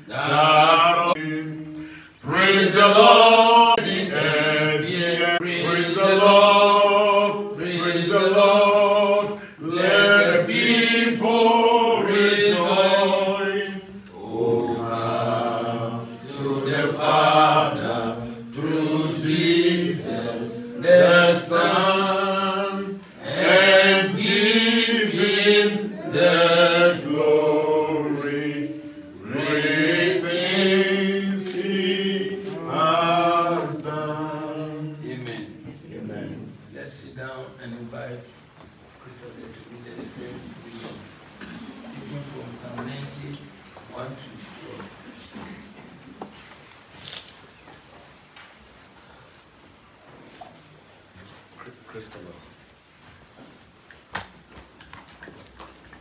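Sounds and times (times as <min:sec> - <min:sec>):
congregation singing a hymn: 0:00.0 - 0:36.7.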